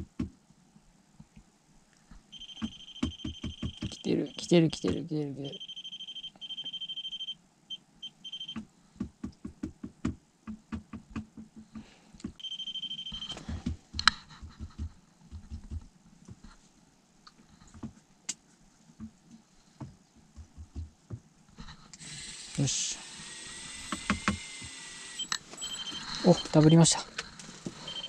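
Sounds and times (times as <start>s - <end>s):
fishing reel alarm beeping: 2.4s - 4.5s, 5.6s - 7.4s, 8.0s - 8.6s, 12.4s - 13.4s, 25.2s - 26.9s, 27.8s - 28.0s.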